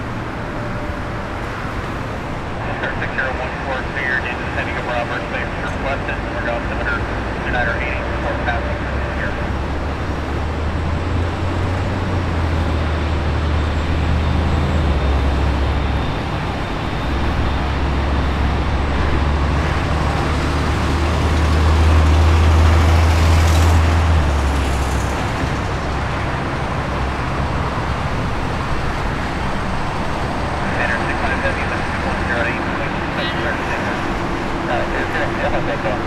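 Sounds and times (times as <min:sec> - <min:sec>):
jet engines rumbling: 0:00.0 - 0:36.0.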